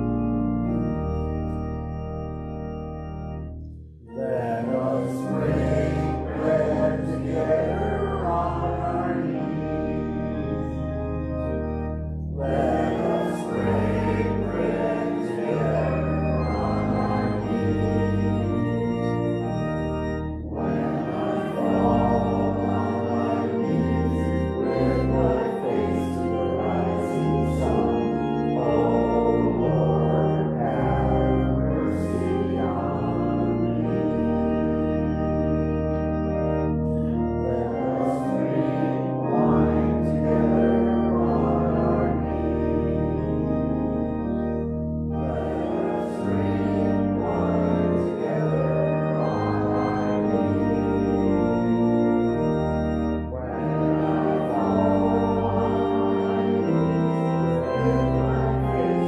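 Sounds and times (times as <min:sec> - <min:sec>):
organ playing hymn chords: 0:00.0 - 0:59.0
voices singing: 0:04.1 - 0:10.5, 0:12.4 - 0:18.5, 0:20.4 - 0:34.3, 0:37.4 - 0:43.4, 0:45.2 - 0:51.6, 0:53.3 - 0:59.0.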